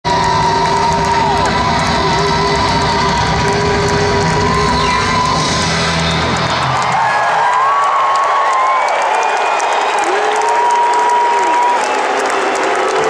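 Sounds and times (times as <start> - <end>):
crowd cheering and whooping: 0.0 - 13.0
live rock band with saxophone: 1.4 - 6.4.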